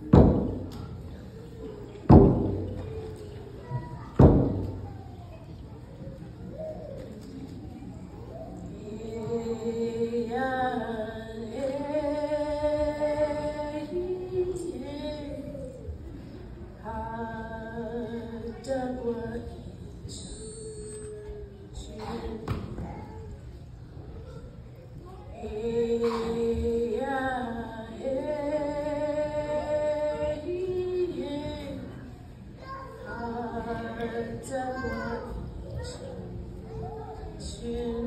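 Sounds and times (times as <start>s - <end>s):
group singing long held notes: 8.8s - 14.8s, 25.4s - 32.0s, 33.1s - 35.1s.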